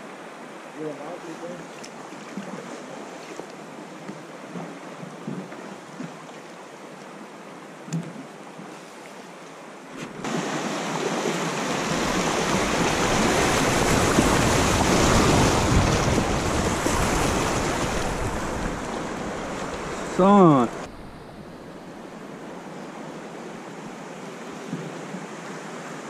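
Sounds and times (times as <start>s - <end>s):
river rapid rushing water: 9.2s - 26.0s.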